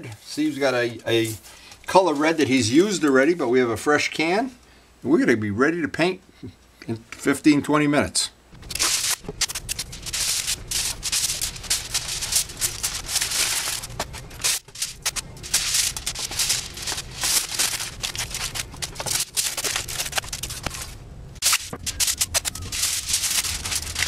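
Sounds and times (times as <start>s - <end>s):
foil and tape crinkling: 8.6s - 24.0s.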